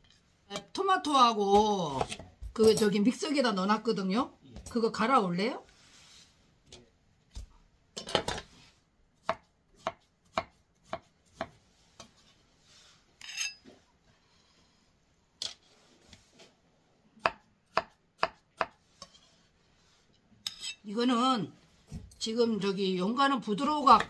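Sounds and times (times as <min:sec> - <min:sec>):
knife scraping: 0:10.8 - 0:13.8, 0:18.8 - 0:20.9.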